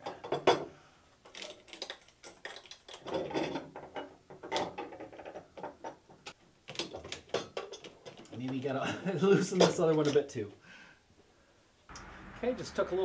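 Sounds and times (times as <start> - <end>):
metallic clicks and rattles: 1.2 - 8.7.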